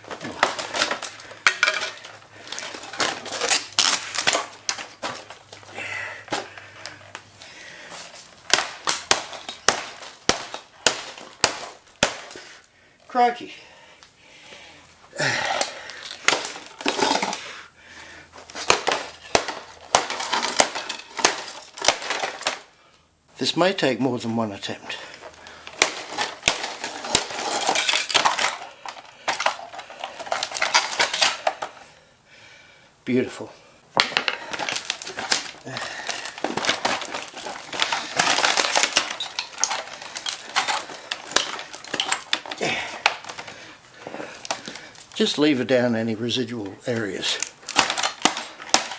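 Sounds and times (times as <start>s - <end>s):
broken glass crunching: 0.0s - 6.6s, 8.4s - 12.7s, 15.6s - 17.4s, 18.4s - 22.8s, 24.9s - 31.8s, 34.0s - 45.8s, 46.9s - 48.9s.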